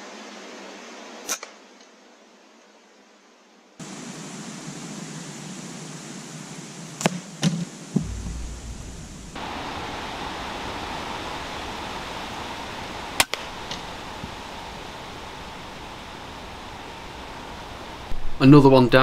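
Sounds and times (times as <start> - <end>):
faint steady hiss: 0.0 - 19.0
air rifle shot: 8.0 - 9.4.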